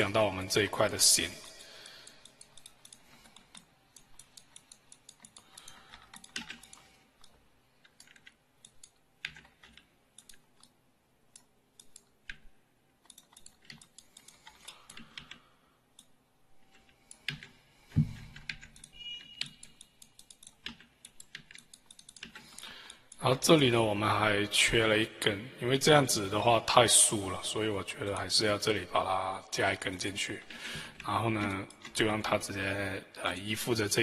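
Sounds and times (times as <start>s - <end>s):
keyboard and mouse clicking: 1.4s - 23.3s, 30.4s - 32.1s.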